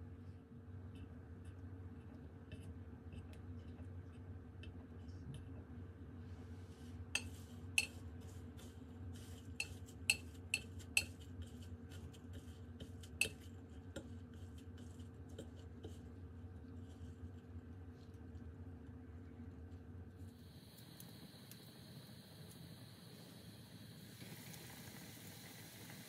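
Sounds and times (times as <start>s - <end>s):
rolling in breadcrumbs rustle: 6.3s - 20.3s.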